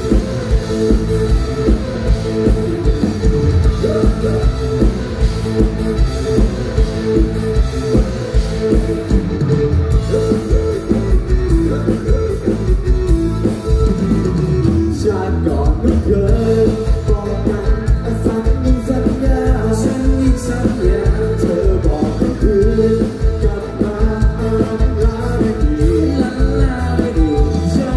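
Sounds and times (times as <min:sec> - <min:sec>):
bass: 0:00.0 - 0:27.9
rock drum beat: 0:00.0 - 0:27.9
man singing amplified: 0:03.2 - 0:06.0, 0:14.6 - 0:27.9.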